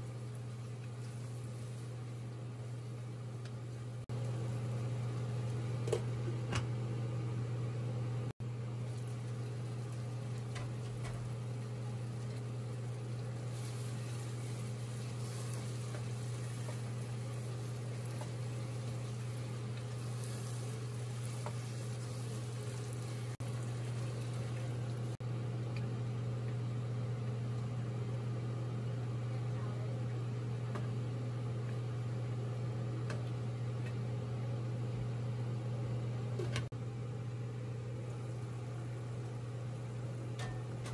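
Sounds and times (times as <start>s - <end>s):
curry sizzling in a pot: 0.0s - 6.3s, 8.4s - 25.2s
steady mechanical hum: 0.0s - 40.9s.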